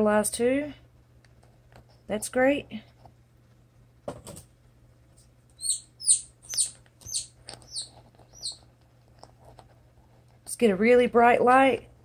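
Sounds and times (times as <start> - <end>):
chicks peeping: 5.6 - 8.7.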